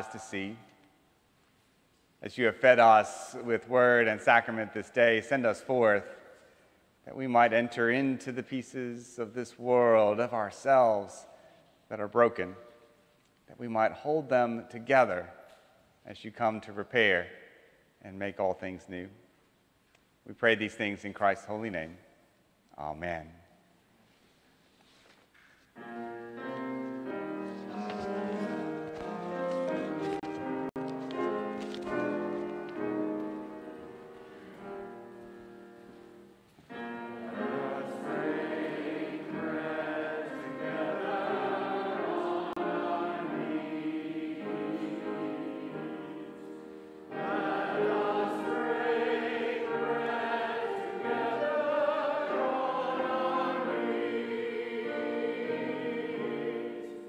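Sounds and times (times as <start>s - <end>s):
choir singing with accompaniment: 25.8s - 57.0s.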